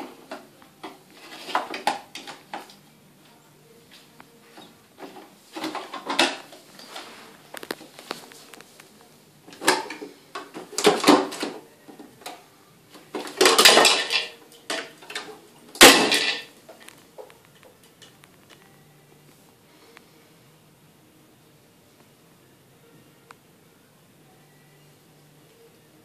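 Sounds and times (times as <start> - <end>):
plastic parts rattling: 13.2 - 16.5.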